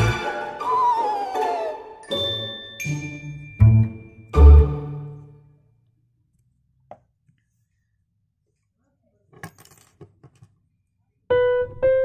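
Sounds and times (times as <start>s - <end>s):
light piano-like keyboard notes: 11.3s - 12.0s.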